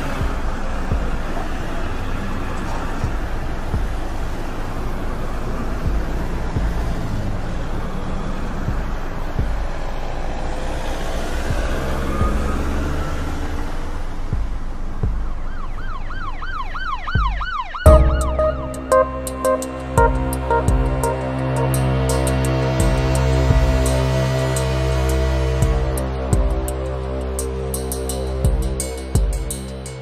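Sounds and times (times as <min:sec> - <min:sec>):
street traffic: 0:00.0 - 0:30.0
loud thump: 0:17.9 - 0:18.8.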